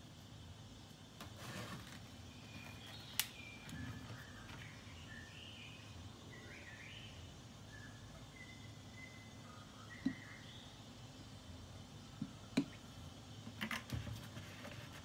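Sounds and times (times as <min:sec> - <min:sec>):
faint bird chirps: 0:02.2 - 0:10.9.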